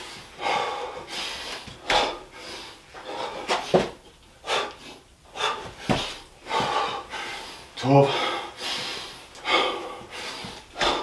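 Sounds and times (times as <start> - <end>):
man panting: 0.0 - 11.0
thumps on carpeted floor: 5.7 - 6.7.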